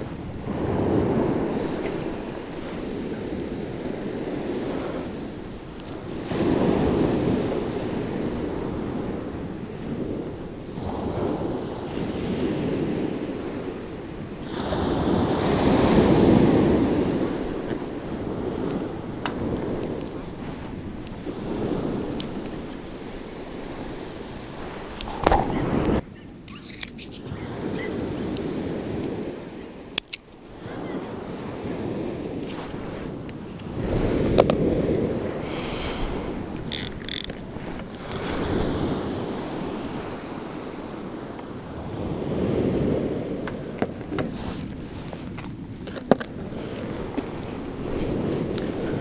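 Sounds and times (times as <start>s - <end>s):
waves washing on shingle: 0.0s - 26.0s, 31.2s - 49.0s
wind: 0.0s - 49.0s
scissors snipping fishing line: 36.6s - 37.4s
fishing tackle clicking on pebbles: 36.6s - 38.8s.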